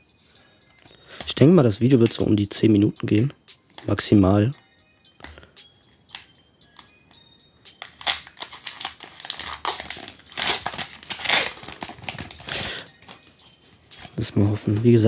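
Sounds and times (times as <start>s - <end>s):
quiet background music: 0.0s - 15.0s
foil wrapper tearing and crinkling: 7.9s - 12.5s.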